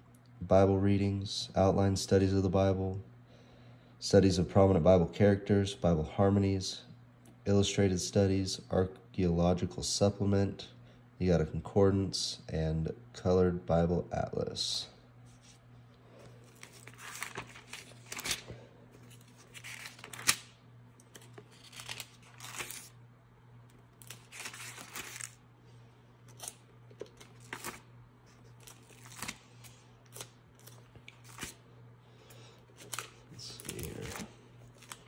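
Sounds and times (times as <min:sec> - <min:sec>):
book pages turning: 0:15.3 - 0:15.6, 0:16.2 - 0:23.0, 0:23.7 - 0:25.4, 0:26.2 - 0:31.6, 0:32.7 - 0:35.0.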